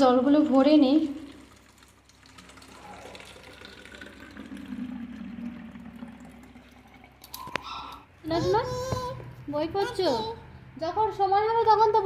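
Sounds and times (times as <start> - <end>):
water filling plastic bottle: 0.6 - 8.0.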